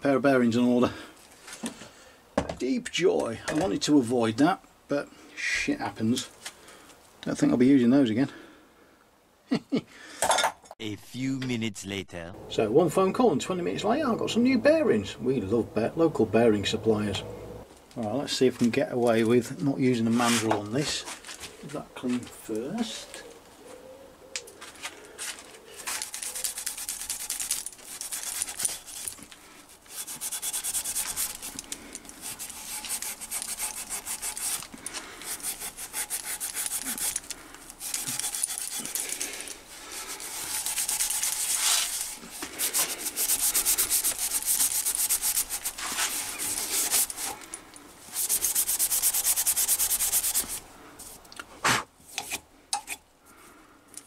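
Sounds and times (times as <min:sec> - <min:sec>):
abrasive pad scrubbing steel shaft: 0:12.5 - 0:17.6, 0:29.9 - 0:47.4, 0:48.1 - 0:50.6.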